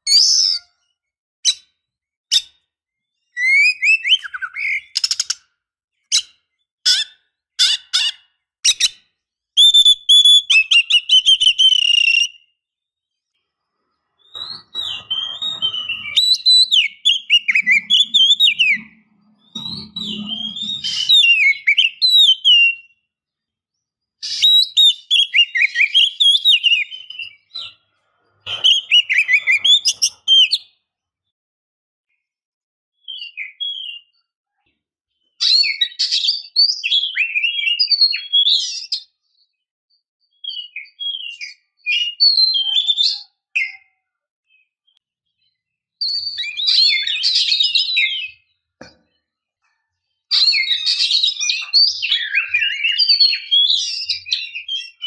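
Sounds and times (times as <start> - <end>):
magpie-robin calling: 0.0 - 0.7, 3.3 - 5.4, 6.1 - 9.0, 14.2 - 22.9, 24.2 - 27.6, 28.4 - 30.7, 50.3 - 55.0.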